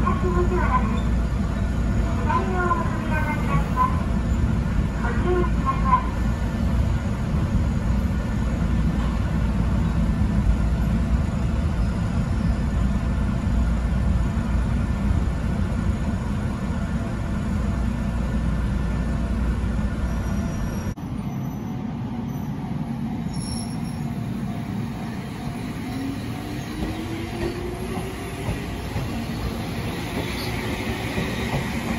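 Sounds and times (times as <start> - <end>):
electric train rumbling: 0.0 - 31.9
station platform ambience: 0.0 - 31.9.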